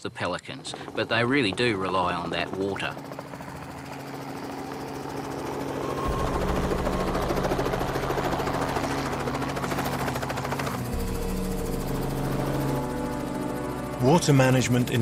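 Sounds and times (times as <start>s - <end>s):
helicopter rotor chop: 0.0s - 15.0s.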